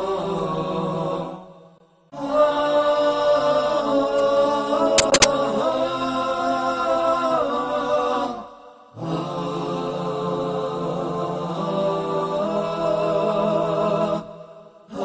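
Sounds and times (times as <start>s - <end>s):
sharp clicks: 5.0s - 5.3s.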